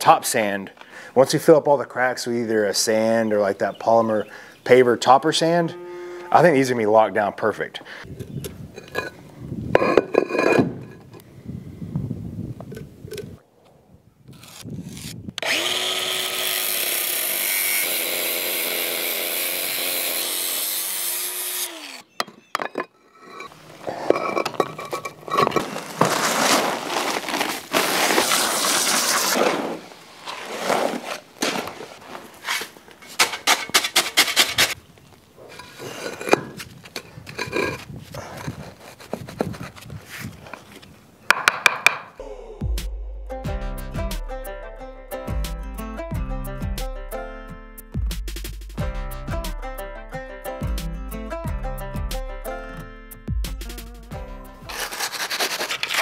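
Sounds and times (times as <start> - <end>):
scraping: 8.1 - 11.2, 22.2 - 40.9, 54.7 - 56.0
angle grinder cutting concrete: 15.4 - 22.1
dry concrete mix pouring: 23.8 - 34.7, 54.7 - 56.0.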